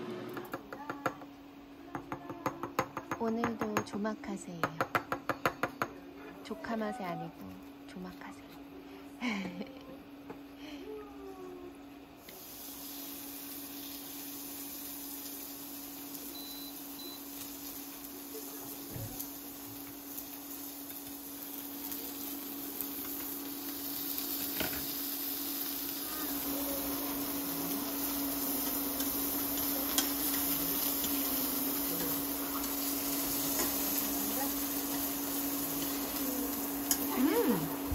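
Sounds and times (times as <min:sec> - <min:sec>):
cooktop hum: 0:00.0 - 0:37.9
beef sizzling in frying pan: 0:12.2 - 0:37.9
metal tongs clicking on pan: 0:28.6 - 0:31.2, 0:36.8 - 0:37.1.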